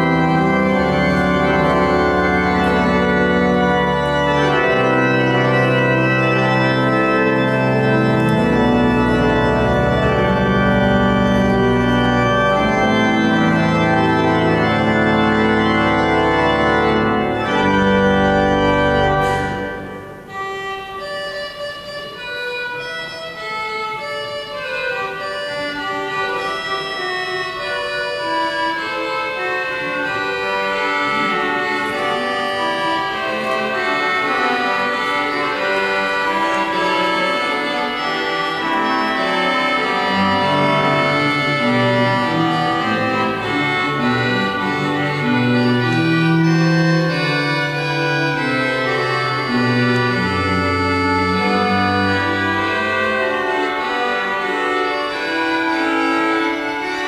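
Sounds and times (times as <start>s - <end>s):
pipe organ playing chords: 0.0s - 57.0s.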